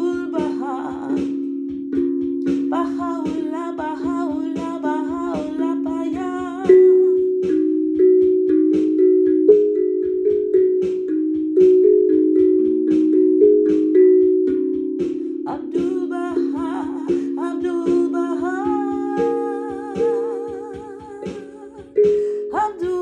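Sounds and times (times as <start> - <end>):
wordless singing voice: 0.0 - 1.4, 2.7 - 7.2, 15.5 - 23.0
steel tongue drum notes: 0.0 - 23.0.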